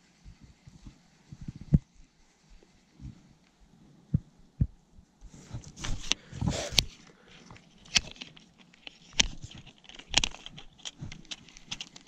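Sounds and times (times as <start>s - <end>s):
rustling: 0.0s - 4.4s, 5.2s - 12.0s
rod and reel clicks and knocks: 5.7s - 12.0s.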